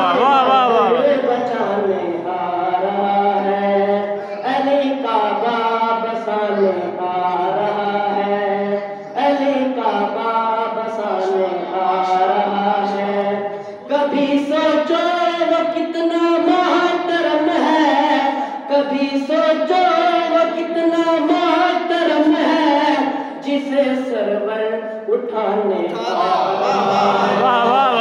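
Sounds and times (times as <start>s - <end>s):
boy singing a chant: 0.0s - 28.0s.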